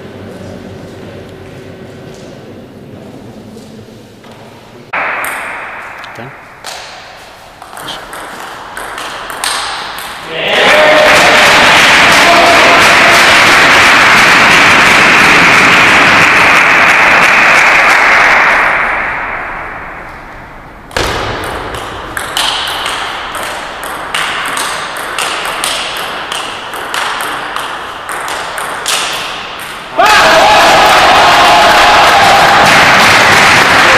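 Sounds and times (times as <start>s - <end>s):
table tennis ball clicking: 7.7s - 10.2s
loud rushing noise: 10.3s - 24.3s.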